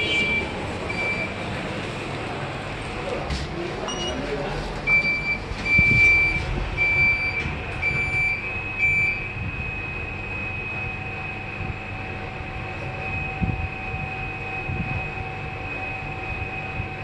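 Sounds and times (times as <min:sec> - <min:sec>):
lift beeps: 0:00.0 - 0:01.4, 0:03.8 - 0:04.2, 0:04.9 - 0:17.0
lift low hum: 0:04.8 - 0:17.0
lift high whine: 0:05.1 - 0:17.0.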